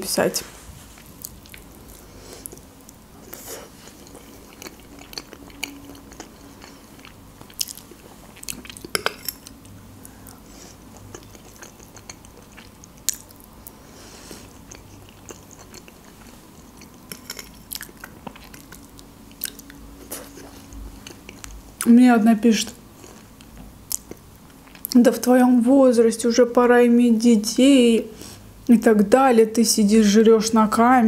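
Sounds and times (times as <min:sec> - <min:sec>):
close chewing and wet mouth sounds: 0:00.9 - 0:21.9, 0:22.9 - 0:25.1.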